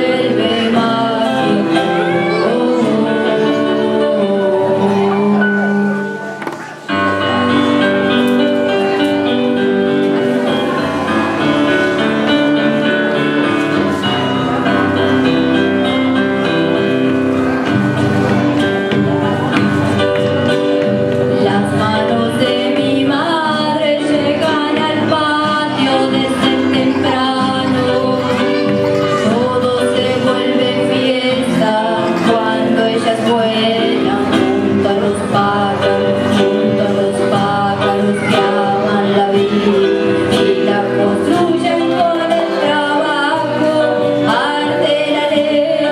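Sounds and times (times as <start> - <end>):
woman singing: 0.0 - 6.4, 21.2 - 45.9
acoustic guitar: 0.0 - 45.9
electronic keyboard: 0.0 - 45.9.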